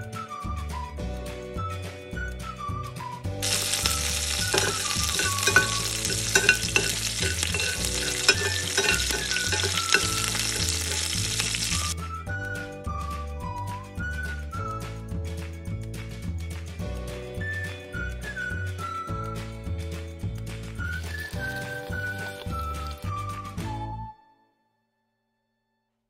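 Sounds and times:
food frying in hot oil: 0:03.4 - 0:12.0.

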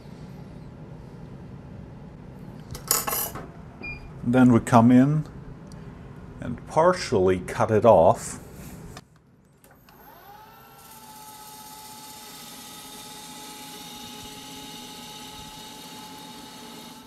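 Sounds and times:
lathe spindle whining: 0:09.8 - 0:17.0
tool cutting metal: 0:10.1 - 0:17.0.

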